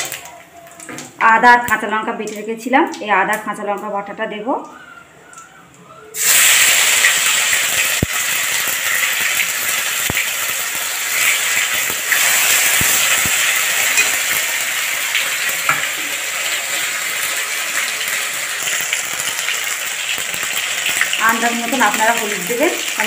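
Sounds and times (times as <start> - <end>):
paste sizzling in hot oil: 6.2 - 23.0.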